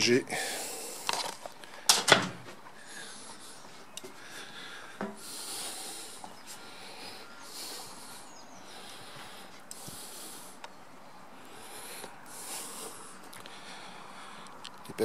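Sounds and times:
hissing breaths: 0.3 - 14.8.

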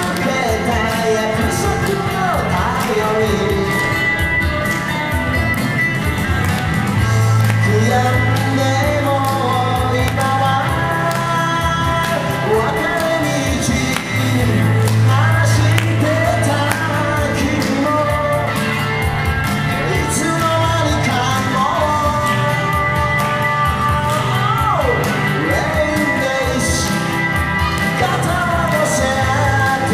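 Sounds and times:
electric guitar: 0.0 - 29.9
low bass notes: 0.0 - 29.9
person singing: 0.0 - 29.9.

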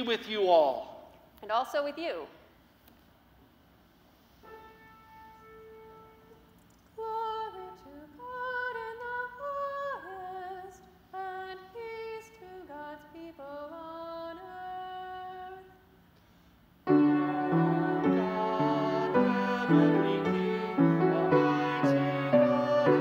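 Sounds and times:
person singing unaccompanied melody: 17.1 - 23.0.

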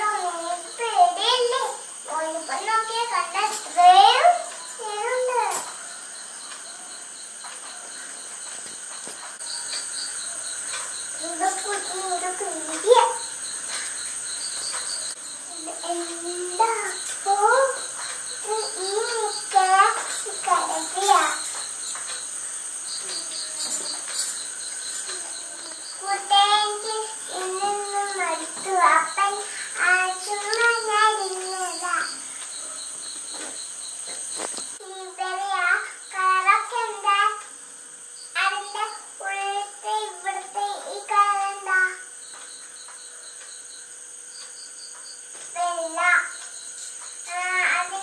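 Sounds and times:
girl singing: 0.0 - 5.6, 11.2 - 13.3, 15.5 - 21.5, 25.1 - 32.2, 34.8 - 37.4, 38.4 - 42.0, 45.6 - 46.3, 47.3 - 48.0
high insect chirring: 0.0 - 48.0
steady hiss: 0.0 - 48.0.

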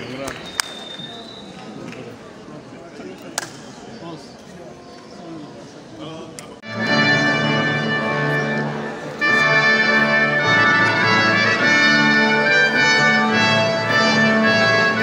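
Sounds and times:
orchestral brass chords: 6.6 - 15.0
trumpet: 6.7 - 15.0.

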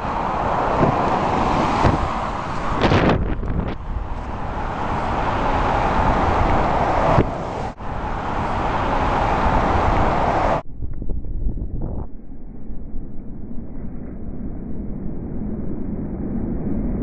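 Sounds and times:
road noise: 0.0 - 10.7
wind rushing on microphone: 0.0 - 17.0.

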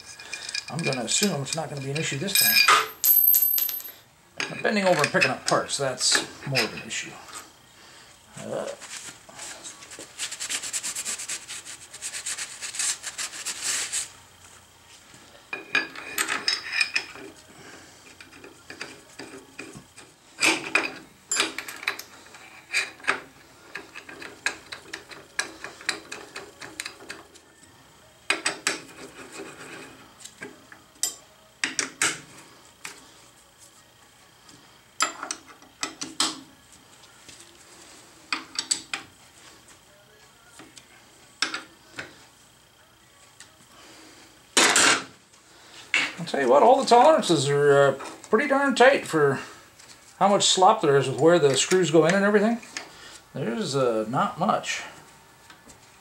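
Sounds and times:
metal parts clinking and scraping: 0.0 - 5.4, 15.6 - 17.2
rag rubbing on metal: 9.9 - 14.2.

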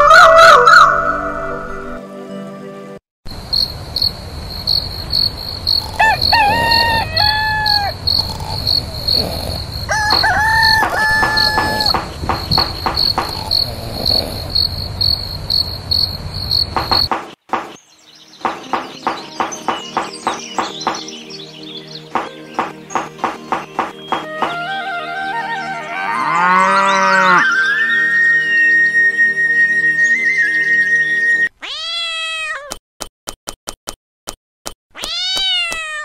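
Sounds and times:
crickets chirping: 3.3 - 17.8
rooster crowing: 5.8 - 8.1, 9.9 - 12.2.

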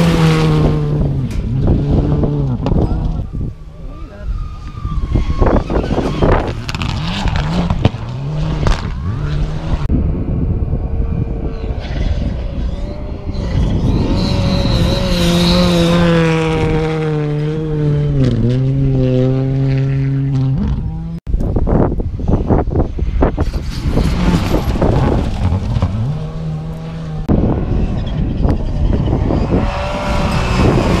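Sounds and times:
rally car engines revving: 0.0 - 21.2, 22.3 - 31.0.

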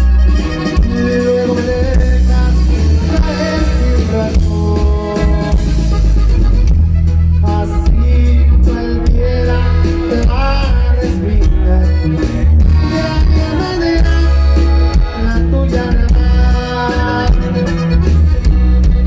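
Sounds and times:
acoustic guitar: 0.0 - 19.0
button accordion: 0.0 - 19.0
drums: 0.0 - 19.0
heavy bass: 0.0 - 19.0.

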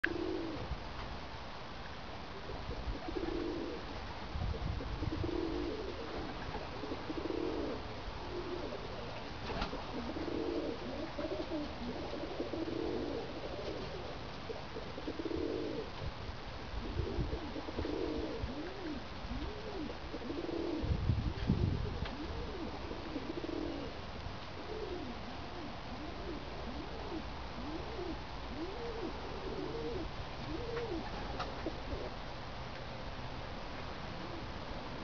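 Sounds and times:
pigeons cooing: 0.0 - 0.7, 2.3 - 16.1, 16.7 - 32.2
steady background hiss: 0.0 - 35.0.

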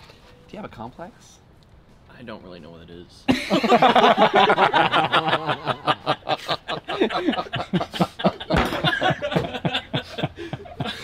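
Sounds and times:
man laughing hard: 3.3 - 11.0.

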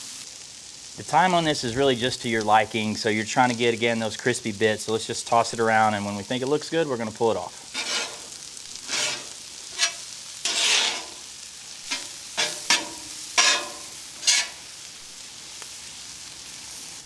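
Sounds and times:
corn sizzling on griddle: 0.0 - 17.0
metal spatula scraping griddle: 7.7 - 14.8.

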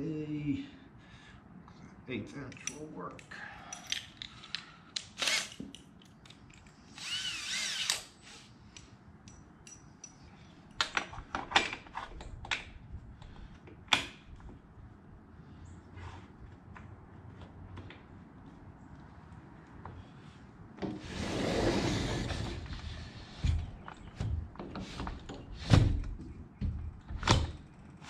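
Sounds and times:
cordless drill whine: 5.2 - 5.6, 6.9 - 8.5.

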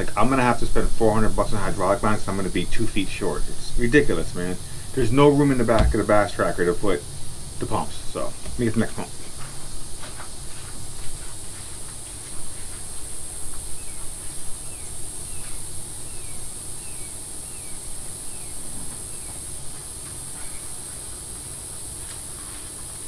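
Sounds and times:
insects droning: 0.0 - 23.0.

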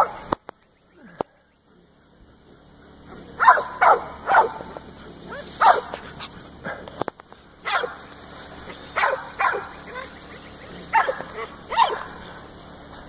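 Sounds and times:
dog barking: 0.0 - 0.3, 2.9 - 6.9, 7.6 - 12.4.

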